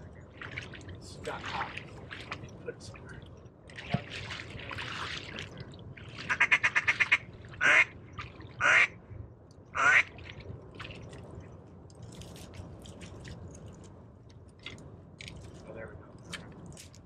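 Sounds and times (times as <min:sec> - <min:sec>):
duck quacking: 0:08.6 - 0:08.9, 0:09.8 - 0:10.1.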